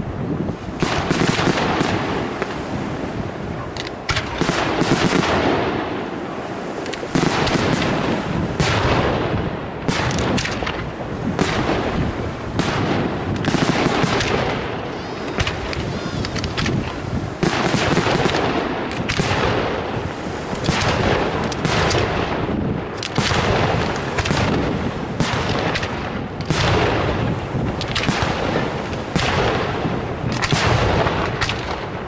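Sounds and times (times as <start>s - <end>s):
firework crackling: 0.0s - 32.0s
firework shells bursting: 3.6s - 5.7s, 9.8s - 32.0s.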